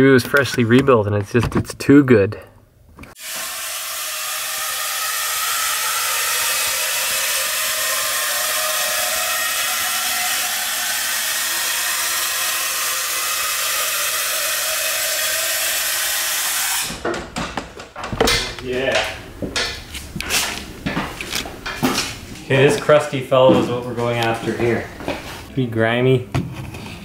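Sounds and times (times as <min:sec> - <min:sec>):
hydraulic fluid hissing: 0:03.2 - 0:16.9.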